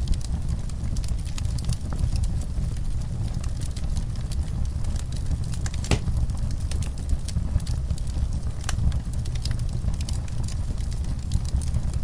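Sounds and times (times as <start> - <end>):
fire pops and snaps: 0.0 - 12.0
wood fire crackling: 0.0 - 12.0
low rumble: 5.9 - 6.8.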